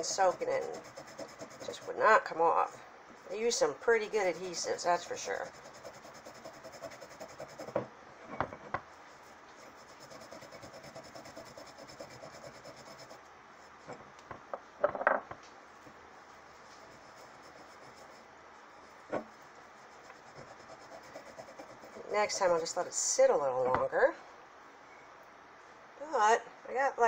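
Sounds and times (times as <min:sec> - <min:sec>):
cloth rubbing on glass jar: 0:00.0 - 0:01.9, 0:09.6 - 0:13.2.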